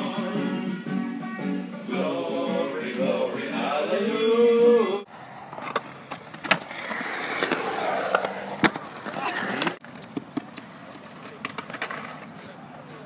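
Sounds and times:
person singing: 0.0 - 5.1
skateboard wheels rolling on concrete: 2.4 - 13.0
skateboard clacks: 5.5 - 12.3.

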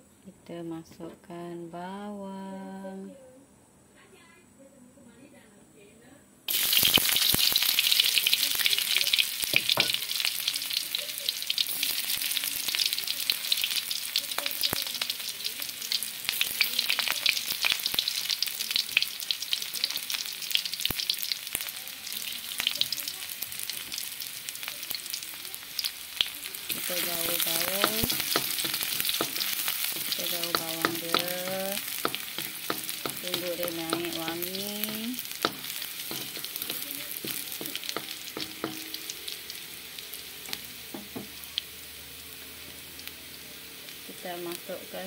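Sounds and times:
onions sizzling in hot oil: 6.5 - 45.0.

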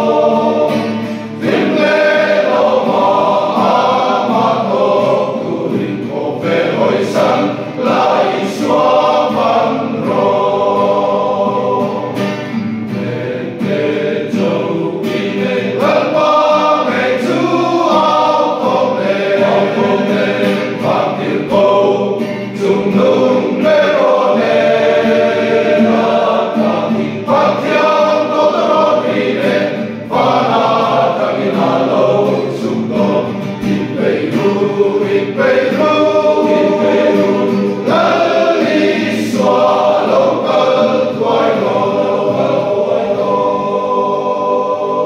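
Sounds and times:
men's choir singing a hymn: 0.0 - 45.0
singers breathing: 0.9 - 1.4.

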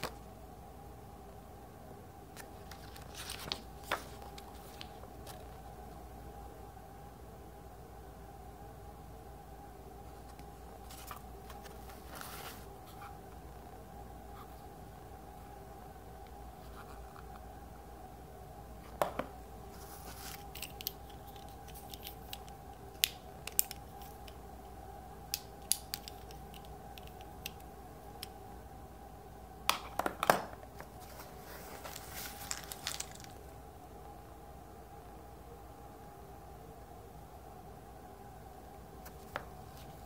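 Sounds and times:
steady hum: 0.0 - 40.0
plastic and cardboard rustling: 2.4 - 5.6, 10.2 - 13.1, 19.7 - 22.2, 30.3 - 33.5.

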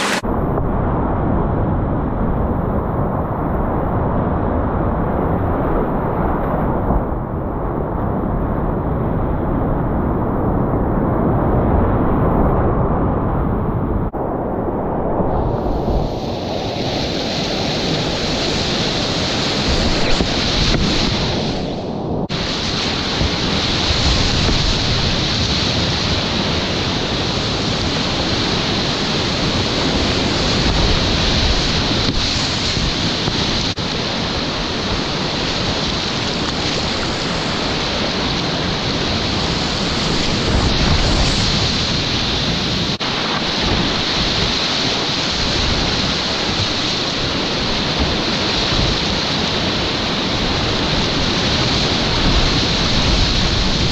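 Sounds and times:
whitewater rapids rushing: 0.0 - 0.2, 22.3 - 53.9.

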